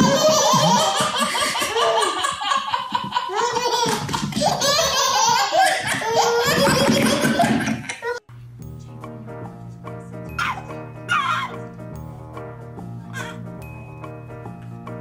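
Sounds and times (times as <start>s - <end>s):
hearty laughter: 0.0s - 8.0s.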